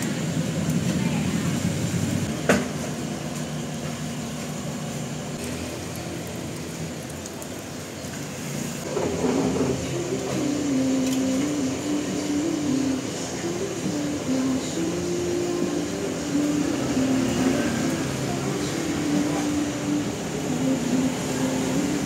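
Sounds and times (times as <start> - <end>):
kitchen hum: 0.0 - 22.0.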